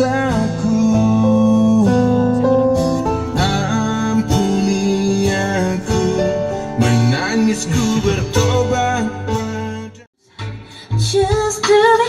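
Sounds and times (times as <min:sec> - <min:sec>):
song with guitar and singing: 0:00.0 - 0:12.0.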